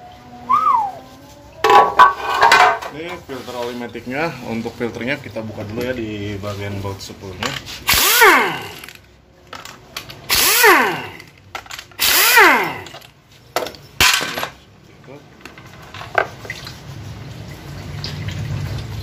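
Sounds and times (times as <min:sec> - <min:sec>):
pneumatic ratchet whirring: 0:07.8 - 0:09.0, 0:10.3 - 0:13.1.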